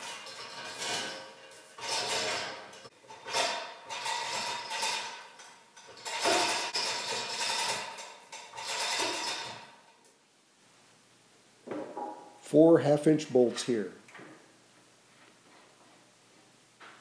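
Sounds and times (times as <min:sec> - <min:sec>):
hoist chain rattling: 0:00.0 - 0:10.1.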